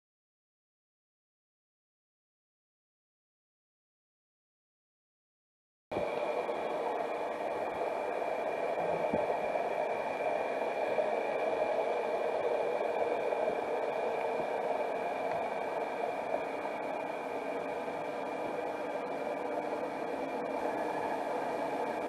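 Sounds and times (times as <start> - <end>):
underwater camera hiss: 6.3 - 22.0.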